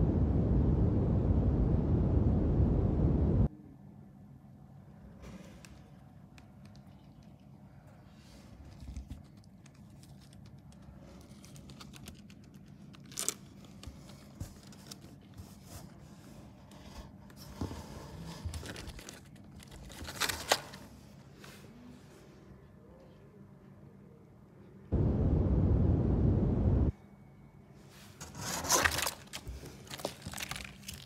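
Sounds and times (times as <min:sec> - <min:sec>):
rabbits scratching on cardboard: 0:28.2 - 0:30.2.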